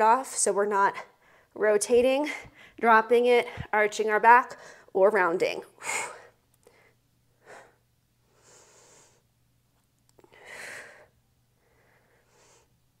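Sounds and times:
woman breathing: 1.0s - 1.6s, 2.2s - 2.8s, 4.5s - 5.0s, 5.8s - 9.3s, 10.2s - 13.0s.

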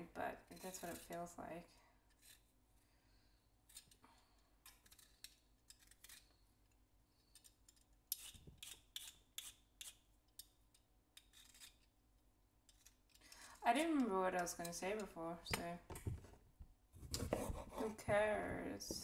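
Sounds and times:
carrot scraping on cutting board: 17.0s - 18.1s.

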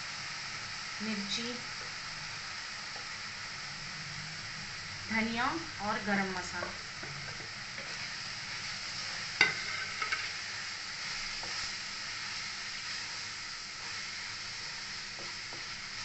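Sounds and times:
masala sizzling in oil: 0.0s - 16.0s
spatula scraping pan: 8.8s - 10.4s.

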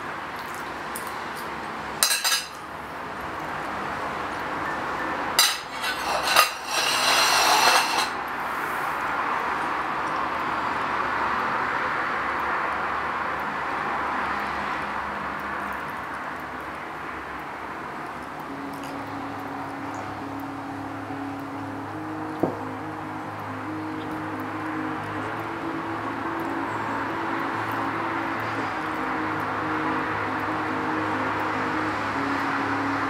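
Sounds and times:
steady background noise: 0.0s - 33.0s
plate and fork clattering: 2.0s - 2.6s, 5.4s - 8.2s
fork clinking on plate: 5.4s - 8.2s.

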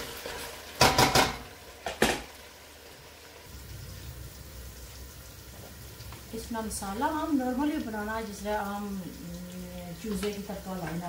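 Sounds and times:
pot boiling: 0.0s - 11.0s
kitchenware clattering on pot: 0.8s - 2.3s.

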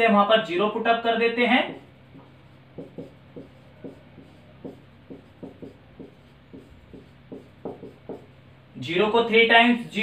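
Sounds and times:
marker writing on whiteboard: 1.6s - 8.5s.

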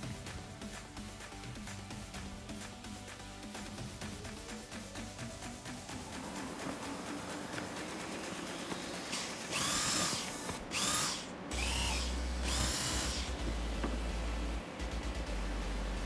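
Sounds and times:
electric drill whining: 8.6s - 13.8s.

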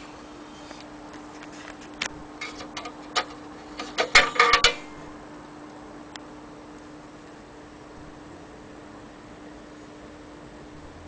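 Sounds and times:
faint steady hum: 0.0s - 11.0s
clicks and knocks on sheet metal: 2.4s - 5.0s.

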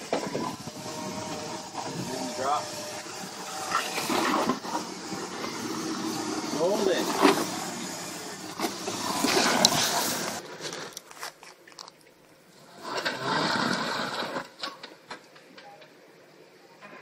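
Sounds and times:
tyres crunching over rocks: 2.6s - 12.3s.

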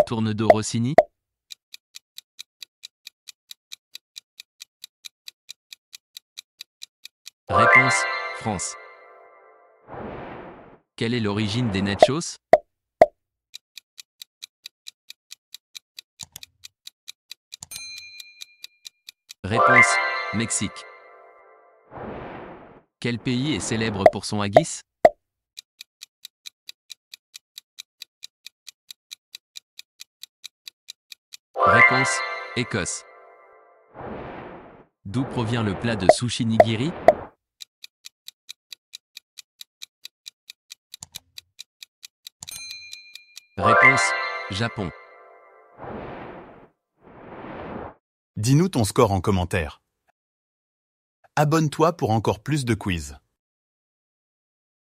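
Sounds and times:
clock-like ticking: 0.0s - 7.8s, 12.0s - 21.5s, 23.2s - 31.6s, 34.0s - 43.9s.

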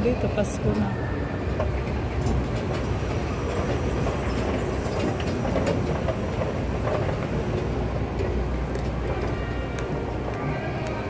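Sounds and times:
escalator mechanical rumble: 0.0s - 11.0s.

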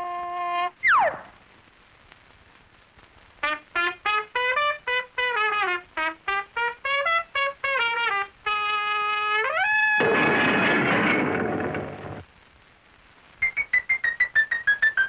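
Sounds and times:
trumpet playing staccato notes: 3.4s - 10.0s
loud rough noise burst: 10.0s - 12.2s.

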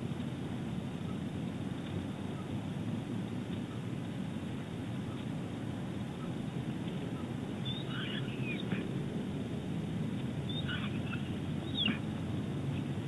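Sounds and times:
steady low rumble: 0.0s - 13.0s
high bird chirps: 7.2s - 8.9s, 10.4s - 12.1s.

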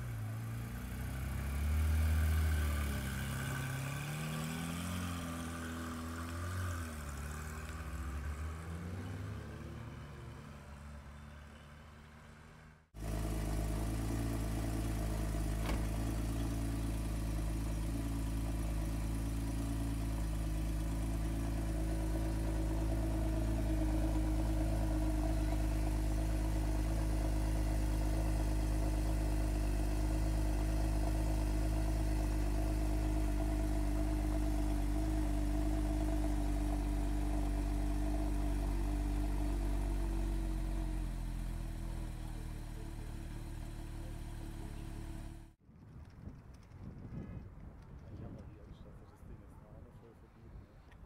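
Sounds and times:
car engine idling: 11.1s - 45.6s.

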